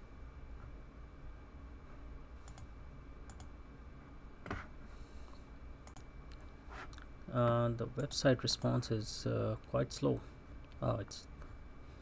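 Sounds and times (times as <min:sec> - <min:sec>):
steady low hum: 0:00.0 - 0:12.0
computer mouse clicks: 0:02.4 - 0:02.7, 0:03.3 - 0:03.5, 0:05.8 - 0:06.4.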